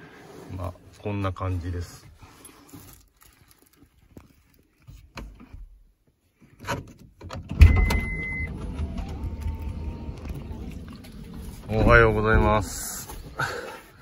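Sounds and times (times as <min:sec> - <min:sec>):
car engine starting: 0:07.6 - 0:13.4
short beep: 0:07.7 - 0:08.6.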